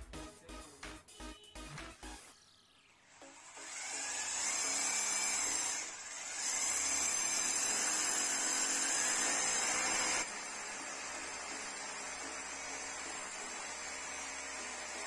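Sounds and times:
electric drill running: 3.1 - 15.0.

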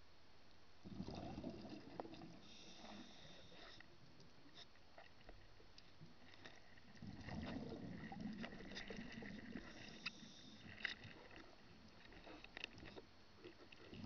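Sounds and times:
underwater bubbling rumble: 0.8 - 2.5, 6.8 - 9.9.

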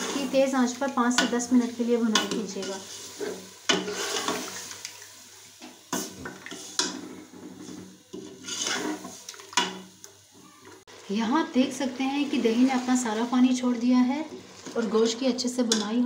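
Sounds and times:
ladle stirring wet food: 0.0 - 10.9, 12.2 - 16.0
ladle scraping against pot: 2.2 - 4.8, 6.0 - 9.7.

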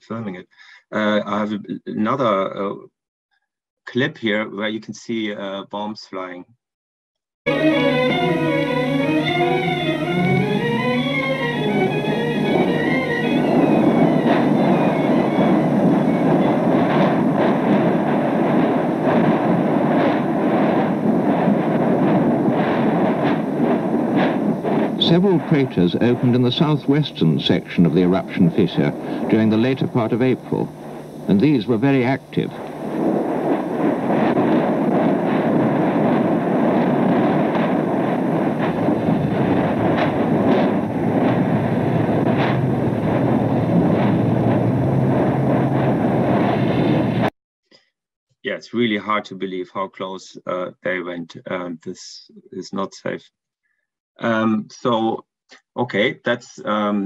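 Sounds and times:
explosive bursts: 7.5 - 47.3
volcanic eruption rumble: 7.5 - 47.3
sharp cracks: 7.6 - 47.3.

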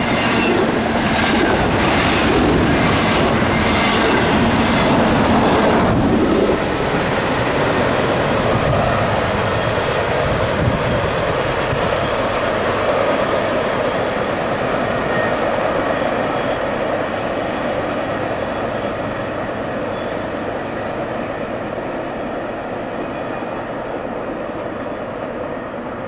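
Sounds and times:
freight train wheels clicking: 0.0 - 7.6
train rumble: 0.0 - 26.0.

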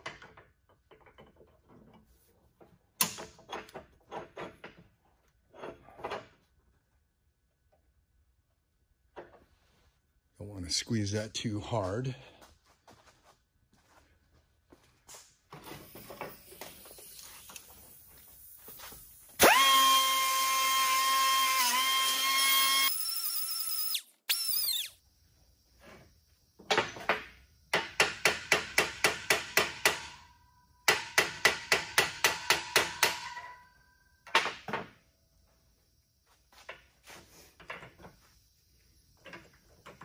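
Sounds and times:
pneumatic cut-off tool whining: 19.4 - 25.0.

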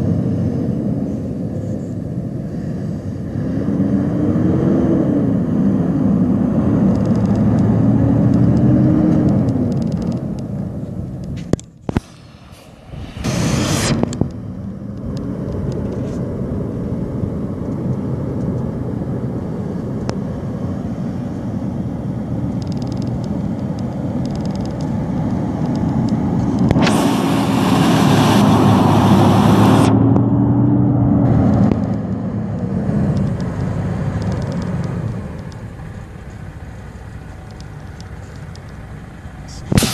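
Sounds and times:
truck diesel engine: 0.0 - 39.9
loud air hiss: 11.9 - 14.2, 26.8 - 30.0, 39.6 - 39.9.

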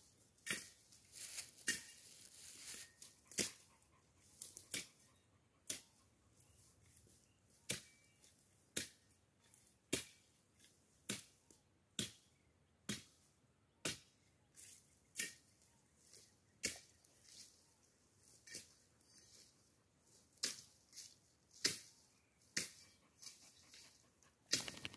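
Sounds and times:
blade chopping dry brush: 20.4 - 22.0.

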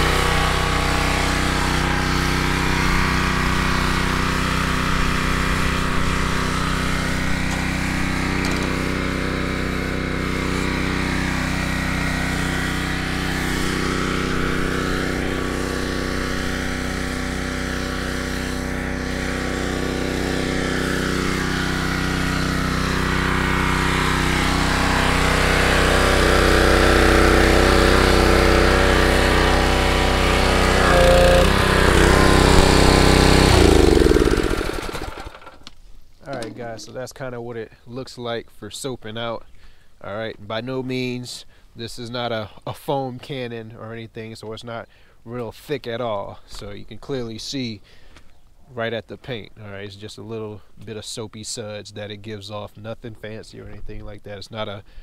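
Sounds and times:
water spray hissing: 0.0 - 35.3
pressure washer engine running: 0.0 - 36.8.

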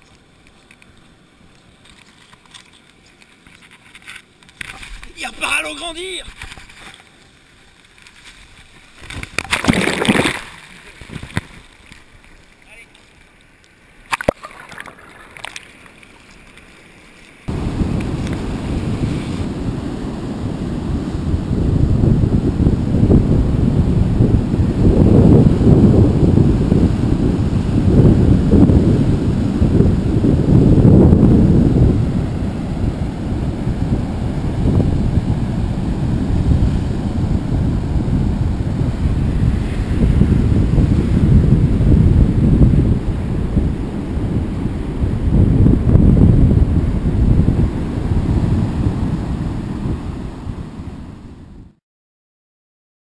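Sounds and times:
faint muffled water: 0.0 - 51.6
breaking surf: 7.9 - 13.2, 14.0 - 51.5
wind buffeting microphone: 17.5 - 51.7.

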